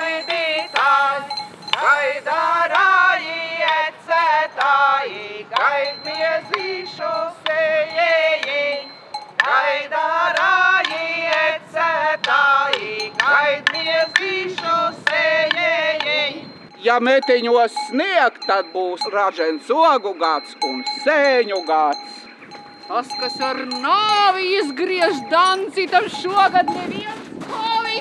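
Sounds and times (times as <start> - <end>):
voices singing a folk song: 0.0 - 21.5.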